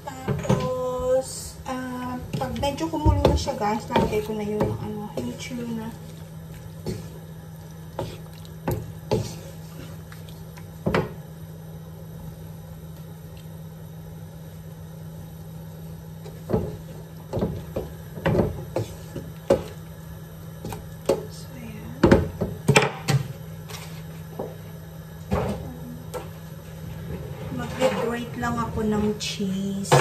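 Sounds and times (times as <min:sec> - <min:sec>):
steady low hum: 0:00.0 - 0:30.0
wooden spoon stirring sauce: 0:02.0 - 0:11.2, 0:16.2 - 0:22.6.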